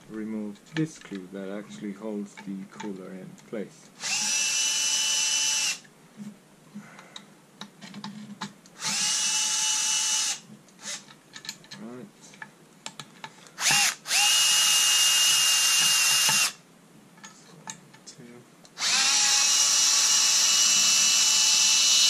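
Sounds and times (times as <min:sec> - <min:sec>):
cordless drill motor whine: 0:04.0 - 0:05.8, 0:08.8 - 0:11.0, 0:13.6 - 0:16.6, 0:18.8 - 0:22.0.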